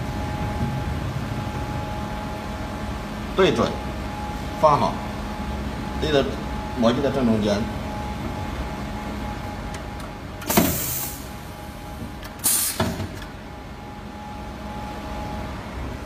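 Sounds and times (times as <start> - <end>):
pneumatic cylinder knocks: 10.4 - 11.2, 12.4 - 13.2
air hiss: 10.5 - 11.3, 12.4 - 13.0.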